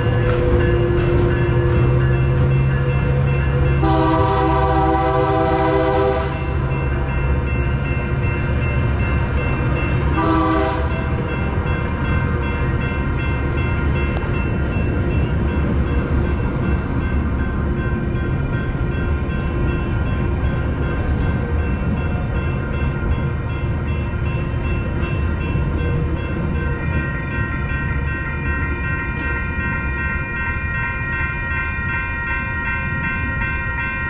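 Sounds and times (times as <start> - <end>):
train rumbling along: 0.0 - 34.0
train horn blasts: 3.8 - 6.6, 10.1 - 11.2.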